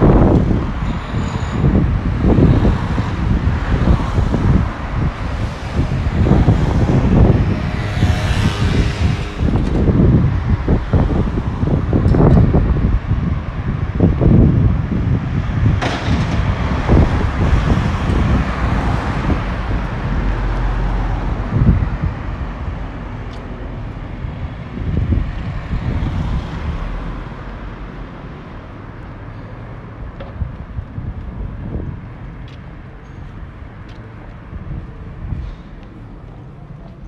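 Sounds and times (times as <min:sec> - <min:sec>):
low vehicle rumble: 0:00.0 - 0:29.2.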